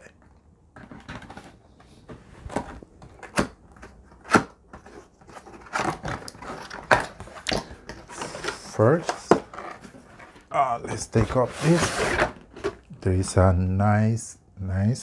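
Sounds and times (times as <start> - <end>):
cardboard box scraping and sliding: 11.2 - 12.8.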